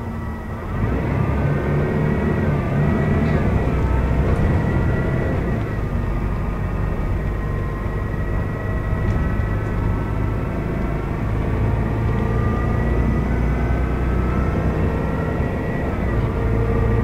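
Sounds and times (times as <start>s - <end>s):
bus engine drone with whine: 0.0s - 17.0s.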